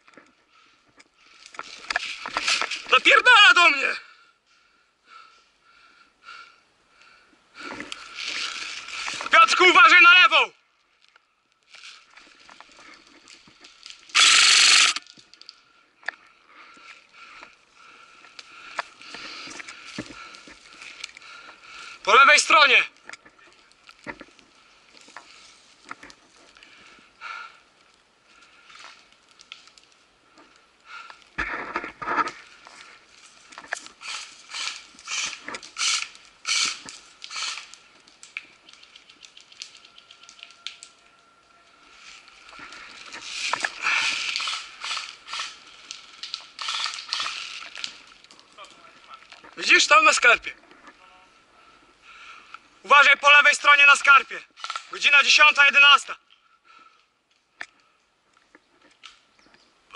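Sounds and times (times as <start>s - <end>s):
small clicks and crackles: 0.0s - 3.0s, 7.0s - 9.4s, 10.8s - 22.1s, 22.9s - 49.6s, 54.5s - 55.0s, 56.3s - 59.9s
footsteps crunching on pine needles: 7.9s - 9.6s
airsoft rifle full-auto burst: 14.1s - 15.0s, 34.0s - 37.7s, 46.6s - 47.5s.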